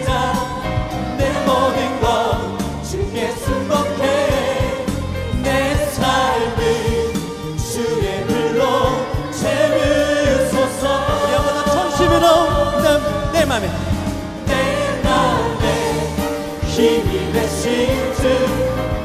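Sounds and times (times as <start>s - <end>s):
choir singing: 0.0s - 19.0s
praise band playing: 0.0s - 19.0s.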